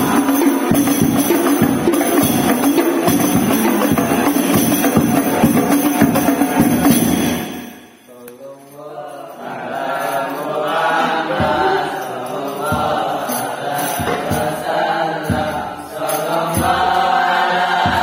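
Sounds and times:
men chanting in unison: 0.0 - 7.6, 8.8 - 18.0.

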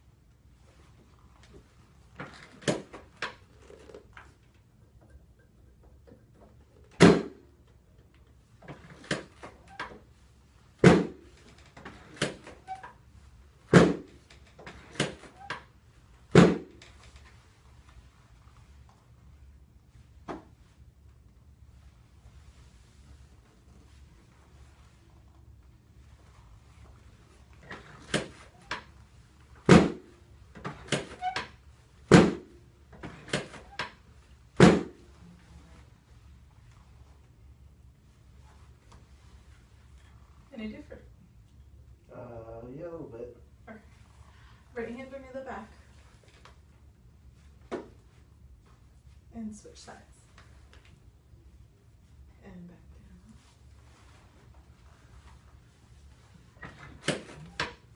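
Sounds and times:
treatment table thumping: 2.2 - 4.4, 6.0 - 7.5, 8.6 - 10.1, 10.8 - 12.9, 13.6 - 15.7, 16.3 - 17.4, 27.5 - 29.0, 29.6 - 35.2, 47.6 - 48.1, 56.5 - 57.9
drop table thuds: 7.0 - 7.4, 10.8 - 11.3, 13.7 - 14.2, 16.3 - 16.8, 29.6 - 31.4, 32.1 - 33.9, 34.6 - 35.0.

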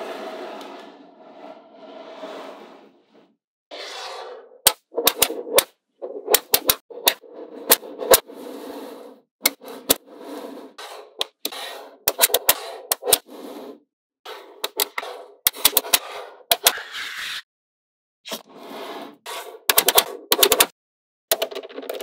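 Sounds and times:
balls rolling and rattling: 21.3 - 22.0.

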